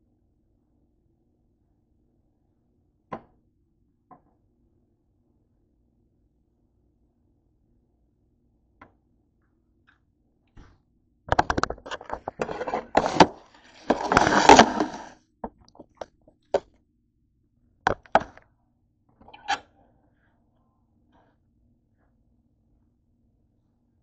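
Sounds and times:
knocks and clatter on a counter: 11.3 - 13.3
rustling: 11.8 - 15.1.

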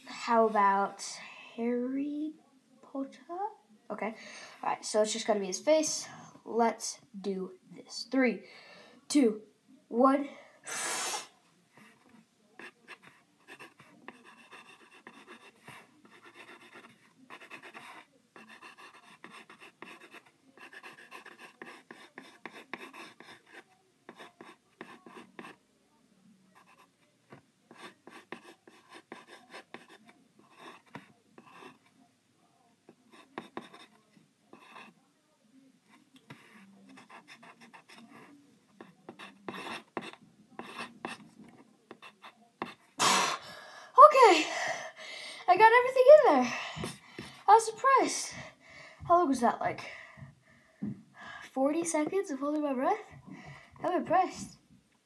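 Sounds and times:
pencil scratching on paper: 11.7 - 25.6, 26.6 - 32.0, 32.9 - 35.1, 35.9 - 43.0.

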